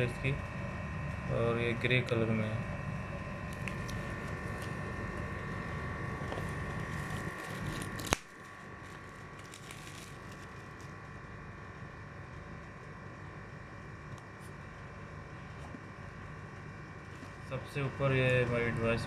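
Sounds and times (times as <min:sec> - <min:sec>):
steady background hum: 0:00.0 - 0:19.0
plastic wrap crinkling: 0:03.4 - 0:11.5, 0:17.0 - 0:19.0.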